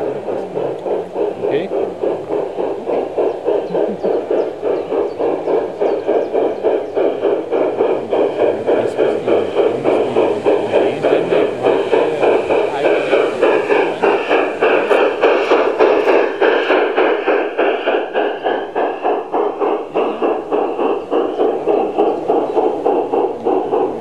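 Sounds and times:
model steam locomotive chuffing: 0.0 - 24.0.

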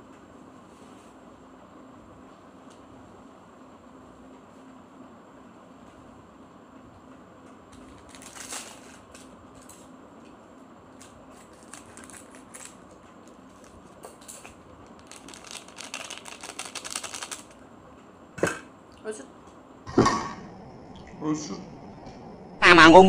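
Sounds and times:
sachet tearing with rapid crackling: 7.8 - 9.3, 11.0 - 14.0, 14.8 - 17.6
sachet crinkling and rustling: 7.8 - 9.8, 10.9 - 17.6.

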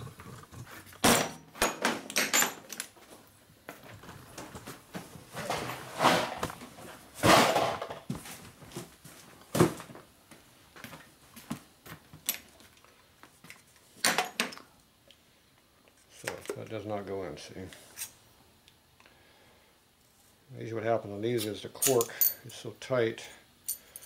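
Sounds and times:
rustling scrapes of cardboard boxes: 5.3 - 7.6
small metal parts clinking: 21.4 - 22.6, 23.4 - 24.0.

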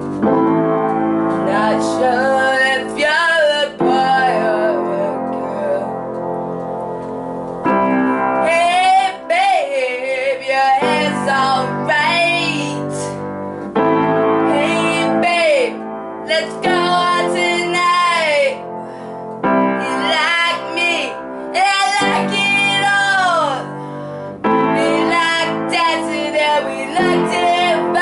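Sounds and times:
piano chords: 0.0 - 28.0
boy singing: 1.4 - 5.9, 8.4 - 13.2, 14.5 - 18.6, 19.8 - 23.7, 24.8 - 28.0.

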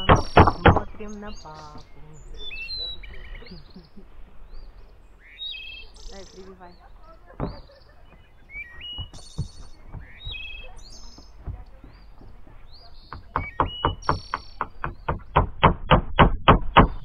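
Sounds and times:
hammer on roof sheet: 8.8 - 17.0.

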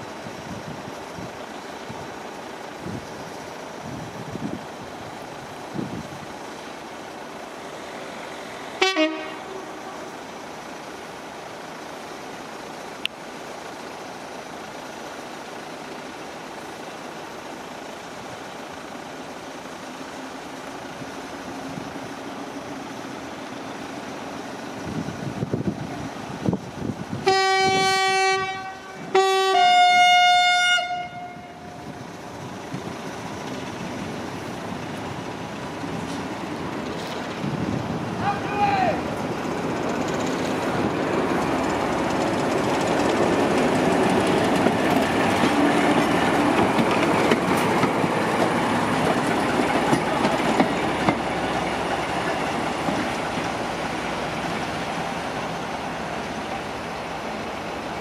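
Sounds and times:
locomotive engine rumble: 0.0 - 58.0
locomotive horn: 8.8 - 10.1, 27.2 - 31.8.

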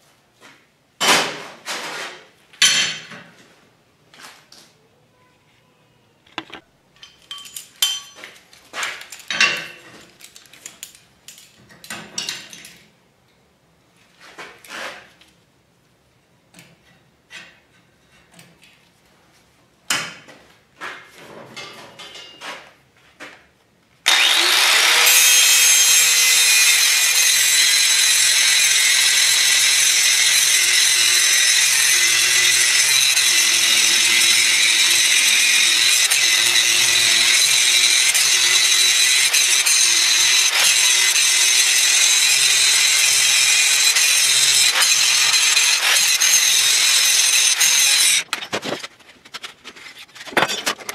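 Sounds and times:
handling clicks and knocks: 6.3 - 8.4
angle grinder grinding steel: 24.1 - 48.3.

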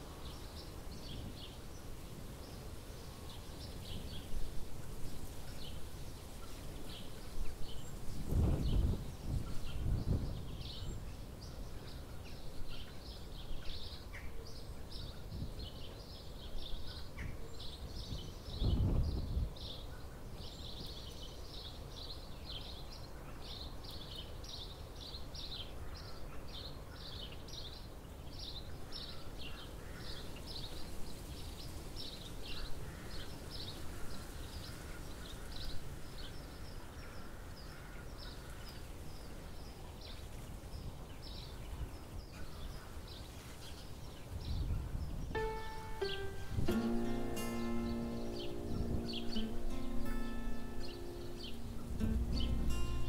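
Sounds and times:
songbird singing: 0.0 - 53.0
wind buffeting microphone: 7.0 - 11.3, 17.9 - 19.7, 44.3 - 45.4.

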